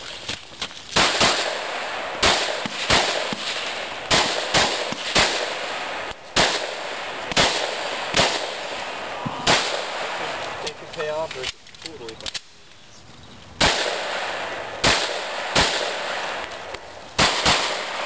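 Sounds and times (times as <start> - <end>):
pistol shots echoing: 1.0 - 10.8, 13.6 - 18.0.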